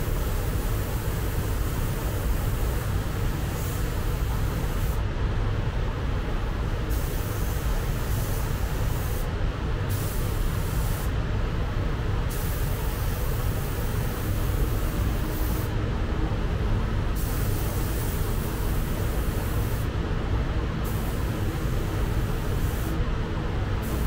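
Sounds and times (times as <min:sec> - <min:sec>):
paint spray gun hissing: 0:09.9 - 0:11.0, 0:20.8 - 0:23.0.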